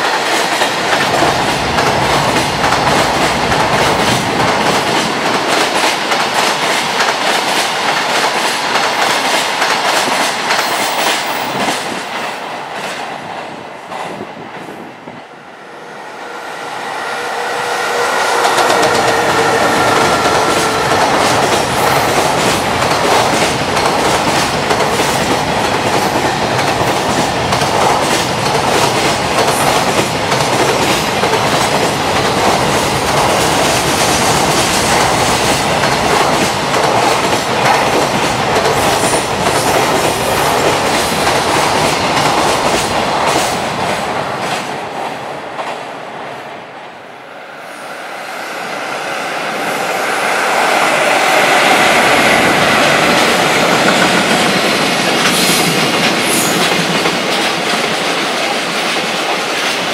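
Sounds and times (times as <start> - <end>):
train whine: 0.0 - 59.9.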